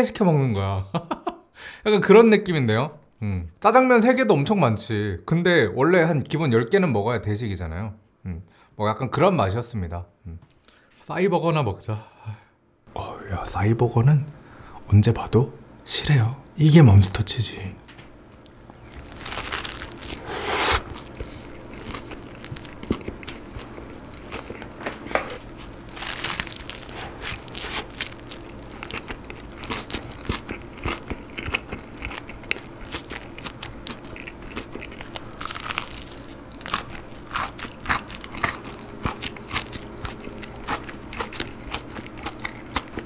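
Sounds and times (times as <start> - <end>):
chewing with small crunches: 18.4 - 20.2, 20.8 - 43.0
crunchy burger bite: 18.5 - 24.7, 25.4 - 43.0.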